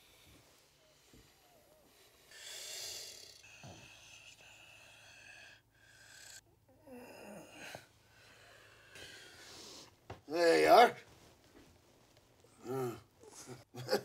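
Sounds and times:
person breathing hard through nose: 0:01.8 - 0:06.4.

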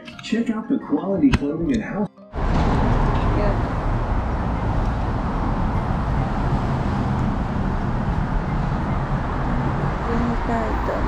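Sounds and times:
passing cars rumble: 0:02.3 - 0:11.0.

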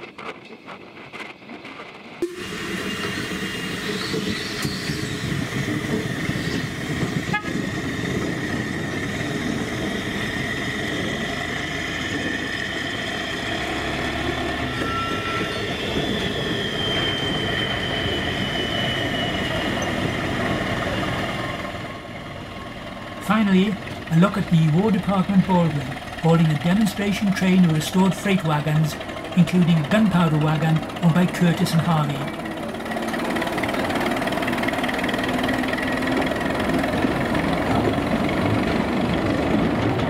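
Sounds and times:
locomotive running rumble: 0:00.0 - 0:40.0
high-pitched tones: 0:13.4 - 0:21.0.

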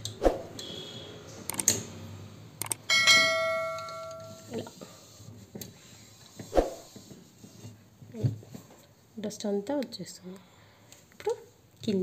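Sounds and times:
mouse clicks: 0:01.5 - 0:01.7
bell ding: 0:02.9 - 0:04.5.

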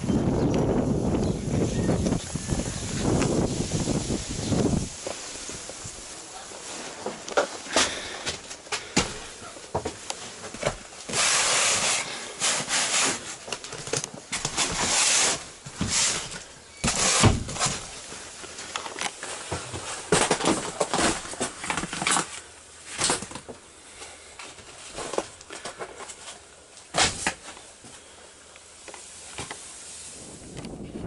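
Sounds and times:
riding gear rustling and rubbing: 0:01.7 - 0:23.3.

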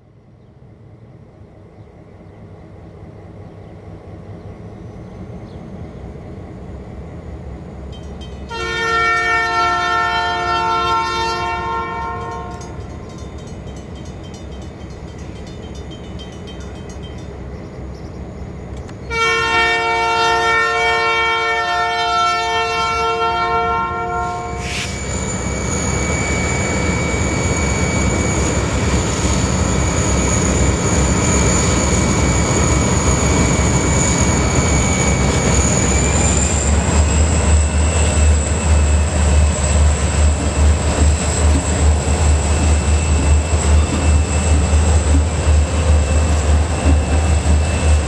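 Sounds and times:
diesel locomotive engine rumble: 0:00.0 - 0:48.0
locomotive air horn blasts: 0:08.5 - 0:12.8, 0:19.1 - 0:25.0.

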